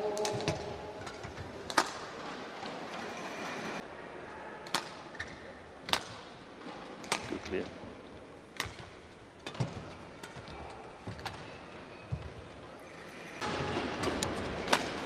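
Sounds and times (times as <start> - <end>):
rackets hitting shuttlecock: 0.0 - 2.1, 4.6 - 7.4, 8.6 - 10.5, 13.9 - 15.0
hall background noise: 0.0 - 15.0.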